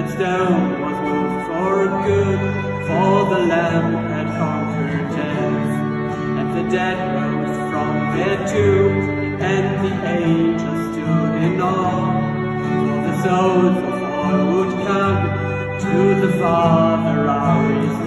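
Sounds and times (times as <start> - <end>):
acoustic guitar: 0.0 - 18.0
man singing: 0.0 - 18.0
violin: 0.0 - 18.0.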